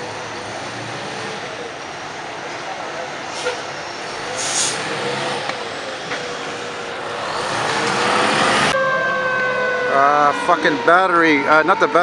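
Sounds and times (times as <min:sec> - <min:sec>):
fire truck engine accelerating: 0:00.0 - 0:12.0
siren steady tone: 0:08.6 - 0:12.0.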